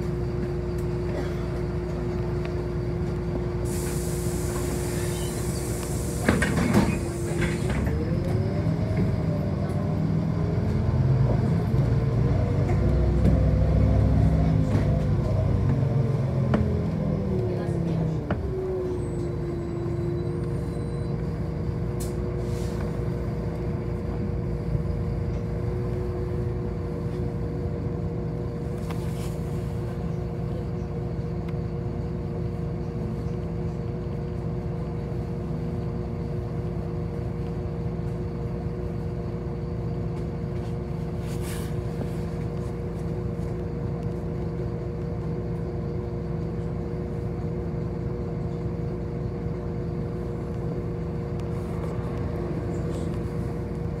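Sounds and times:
bus engine rumble: 0.0 - 54.0
short air hisses: 3.6 - 7.6.

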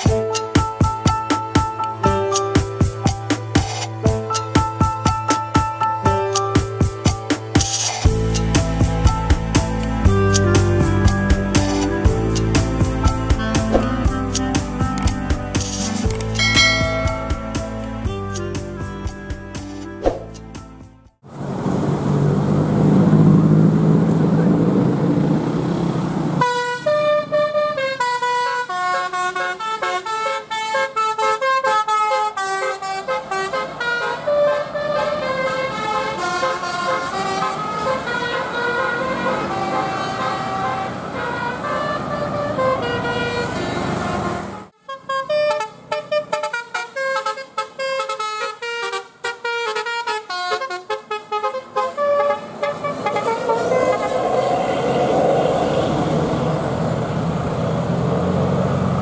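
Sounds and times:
engine and traffic rumble: 0.0 - 59.0
bus musical horn melody: 8.1 - 21.1, 26.4 - 55.1.

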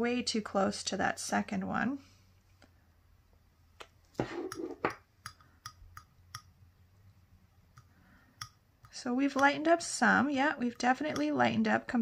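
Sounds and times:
palette knife scraping ceramic tile: 4.2 - 4.9
metal palette knife ticking on tile: 4.5 - 6.6, 7.7 - 9.7, 10.6 - 11.5.

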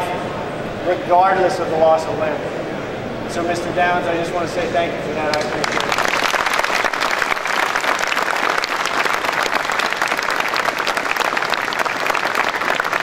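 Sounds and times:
audience applause: 5.3 - 13.0.

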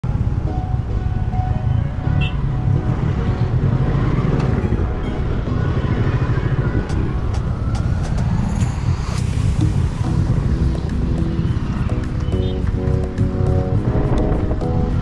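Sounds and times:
road and wind noise: 0.0 - 15.0.

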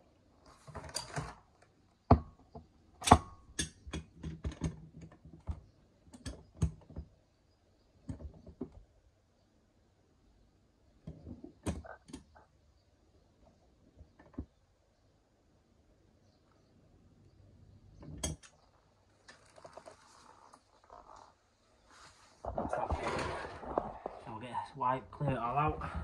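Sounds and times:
short rustle: 19.0 - 24.4.

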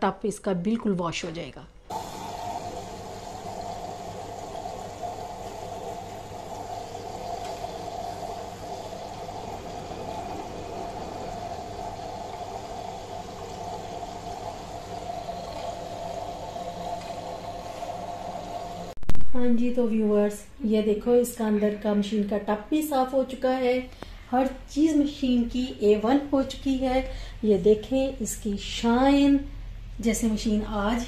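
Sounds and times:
washing machine hum: 1.9 - 19.0.

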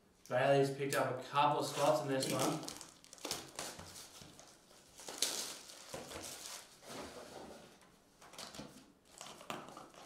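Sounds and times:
cellophane wrap crinkling: 1.7 - 6.8, 8.3 - 10.0.

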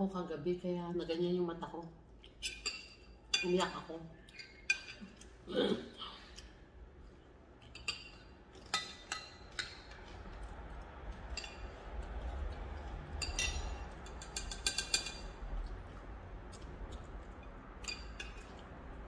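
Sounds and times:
metal spoon clinking on glass bowl: 13.2 - 15.4.

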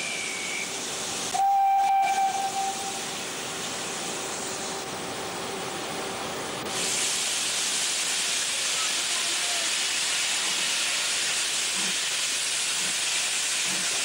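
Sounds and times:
steam locomotive whistle: 0.0 - 3.2
hiss of escaping steam: 0.0 - 4.9, 6.7 - 14.0.

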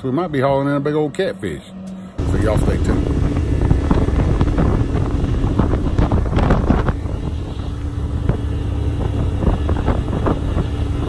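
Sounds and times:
outboard motor drone: 0.0 - 11.0
wind buffeting microphone: 2.2 - 11.0.

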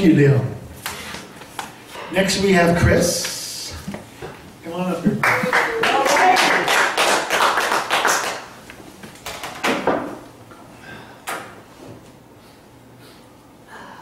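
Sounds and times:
audience applause: 5.2 - 8.6.

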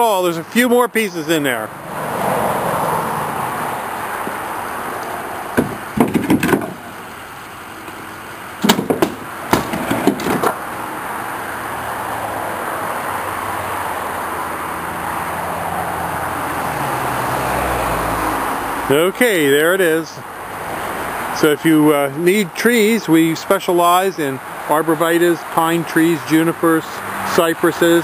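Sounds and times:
truck engine running: 3.4 - 15.4
firewood knocking and clattering: 5.5 - 6.9, 8.6 - 10.6.

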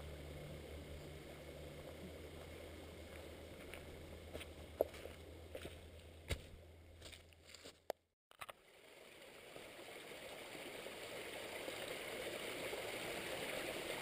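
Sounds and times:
stream running over stones: 0.0 - 5.1, 8.3 - 14.0.

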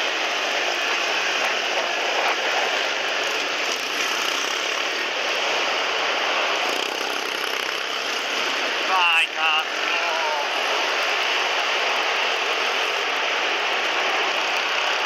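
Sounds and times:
motorbike engines at high revs: 0.3 - 8.9.

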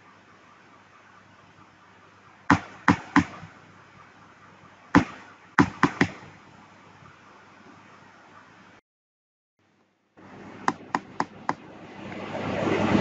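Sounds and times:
sharp knocks on small transformer: 2.5 - 3.5, 5.0 - 6.2.

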